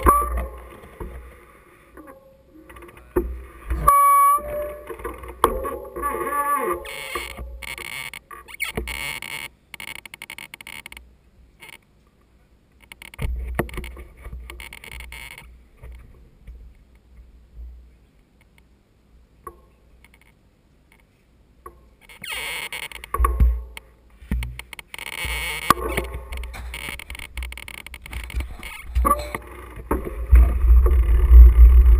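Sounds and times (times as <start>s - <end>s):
bike clicks and rustles: 1.9s - 11.9s, 22.0s - 31.9s.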